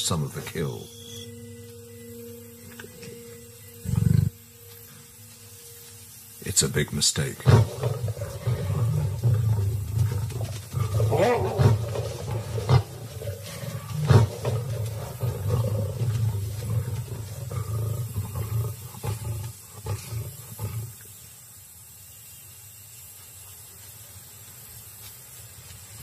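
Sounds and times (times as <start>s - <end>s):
lions snarling and roaring: 3.8s - 4.4s, 7.3s - 21.2s.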